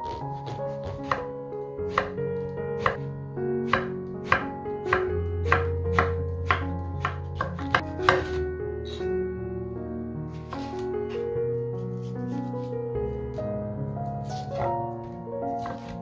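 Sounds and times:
knife chopping on wooden board: 0.0 - 1.3, 1.9 - 2.2, 2.8 - 3.1, 3.7 - 9.0, 10.4 - 11.2, 14.3 - 14.8, 15.6 - 16.0
background music: 0.0 - 16.0.

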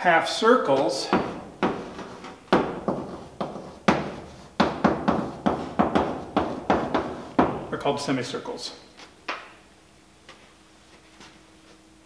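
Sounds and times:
chalk tapping on chalkboard: 1.1 - 7.6.

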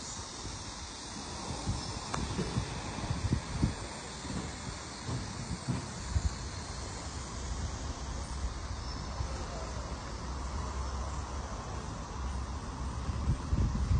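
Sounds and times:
wind rumble on microphone: 0.0 - 6.8, 11.9 - 13.9
small electric vehicle rolling: 0.0 - 9.9
faint outdoor hiss: 0.0 - 13.9.

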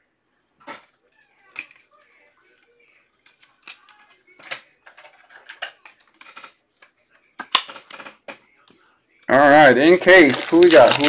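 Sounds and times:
cards and packaging handled: 9.3 - 11.0.

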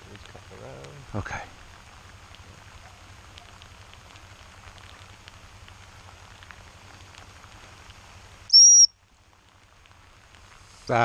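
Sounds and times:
steady rain pattering: 0.0 - 11.0
high-pitched whistle blast: 8.5 - 8.9.

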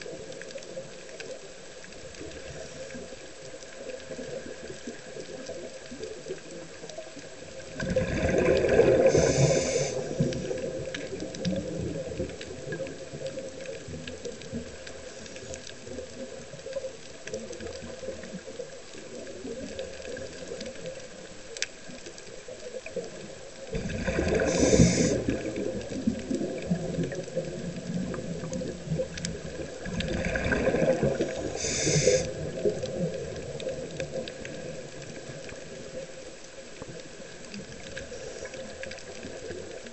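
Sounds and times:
faint clicks: 0.0 - 39.9
steady underwater hiss: 0.0 - 39.9
underwater bubbles gurgling: 0.0 - 39.9.

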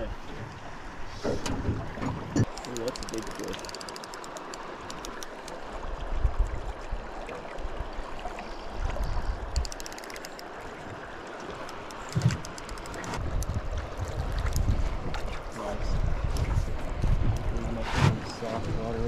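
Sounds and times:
river water lapping against hull: 0.0 - 19.0
wind buffeting microphone: 13.0 - 19.0.

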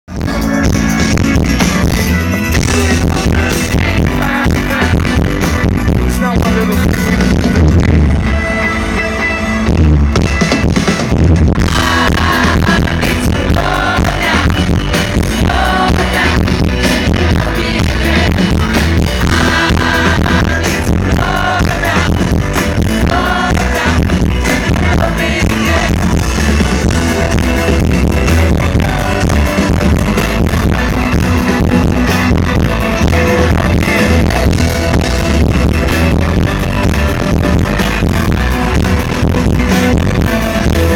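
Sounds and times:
male singer: 0.1 - 7.9, 11.6 - 35.4
live pop band: 0.1 - 40.9.

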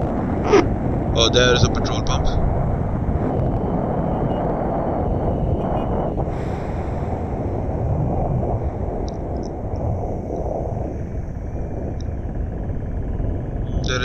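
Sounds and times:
wind rushing on microphone: 0.0 - 14.0.

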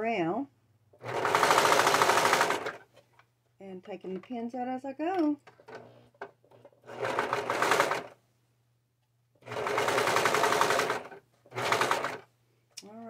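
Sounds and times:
serger sewing machine stitching: 1.0 - 2.9, 5.6 - 8.2, 9.4 - 12.3.

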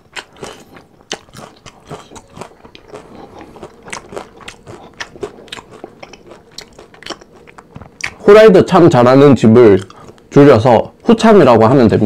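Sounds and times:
crunchy chewing: 0.0 - 8.2, 9.7 - 10.4.

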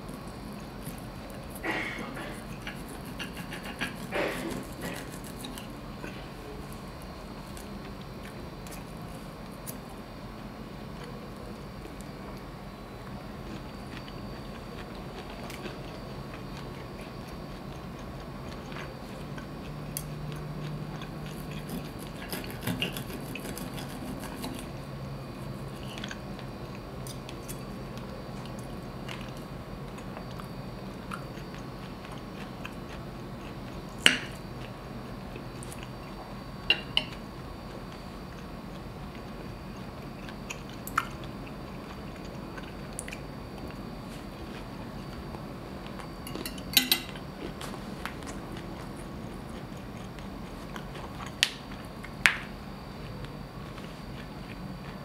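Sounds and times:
knife and fork cutting meat: 1.7 - 6.2, 21.0 - 24.8, 46.3 - 47.2
cutlery clinking on plate: 46.3 - 47.2.

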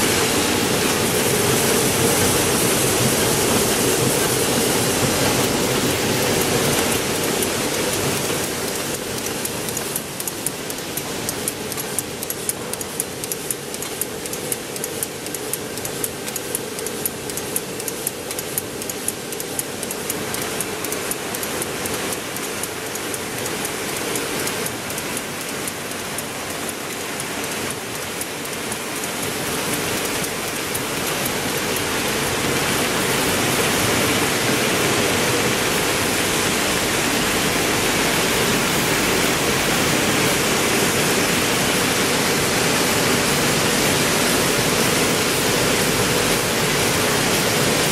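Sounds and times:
printing press hum and rush: 0.0 - 47.9
fast even clicking: 4.2 - 32.1.

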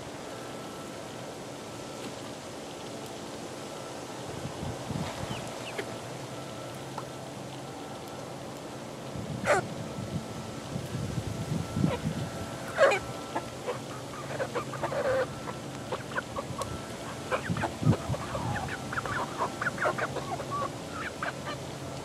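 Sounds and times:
chickens clucking and peeping: 4.7 - 7.2, 9.2 - 10.2, 11.5 - 22.0.

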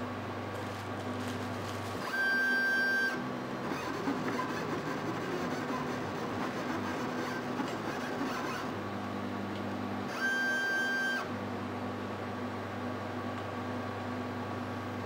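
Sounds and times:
stepper motors whining: 3.6 - 8.8.

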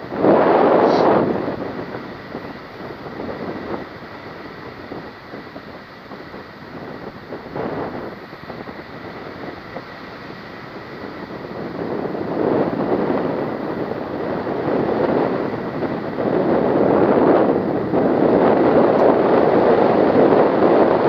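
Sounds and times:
wind rushing over microphone: 0.0 - 21.0.

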